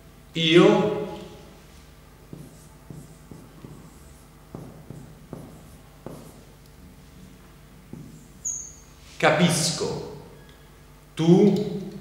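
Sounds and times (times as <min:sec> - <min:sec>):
marker pen writing on whiteboard: 0:02.3 - 0:06.6, 0:07.9 - 0:08.8.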